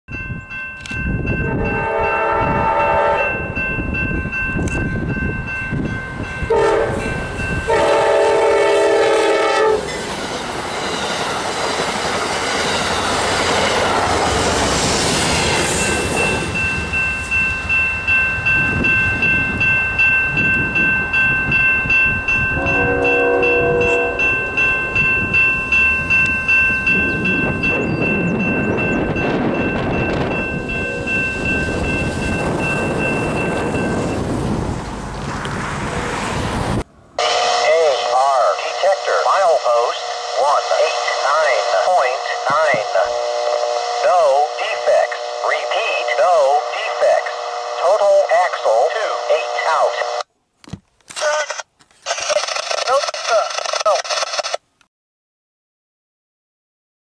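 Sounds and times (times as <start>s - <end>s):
crossing bell ringing: 0.1s - 14.5s, 15.3s - 35.1s, 37.2s - 50.3s
train rushing past: 1.0s - 50.3s
locomotive horn blasts: 1.4s - 3.5s, 6.5s - 9.9s, 22.6s - 24.5s, 37.2s - 39.3s, 40.0s - 41.6s, 42.2s - 45.7s, 46.5s - 47.9s, 49.0s - 50.2s.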